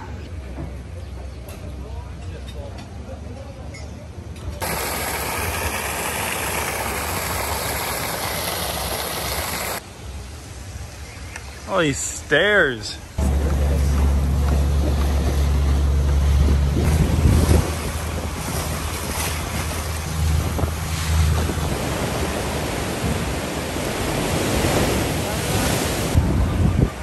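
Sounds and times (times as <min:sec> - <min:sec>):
outboard motor humming: 0:04.6 - 0:09.8, 0:13.2 - 0:24.3
water rushing past hull: 0:04.6 - 0:09.8, 0:13.2 - 0:27.0
wind buffeting microphone: 0:14.4 - 0:27.0.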